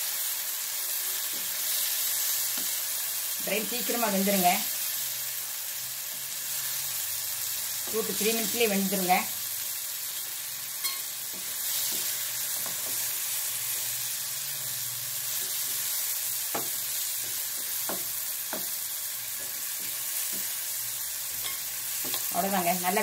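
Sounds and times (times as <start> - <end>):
food sizzling in hot oil: 0.0 - 23.0
spatula knocking against pan: 16.5 - 18.8.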